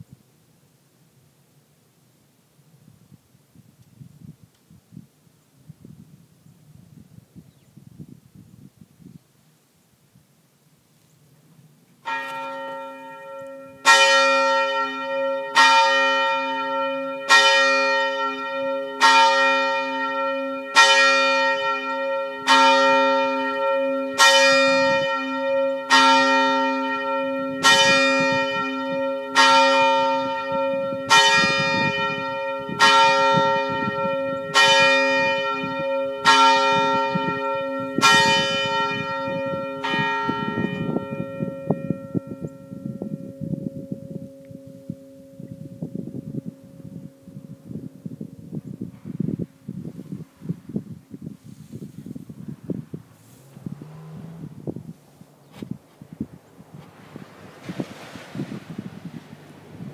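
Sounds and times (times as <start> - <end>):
church bell tolling: 12.0 - 48.3.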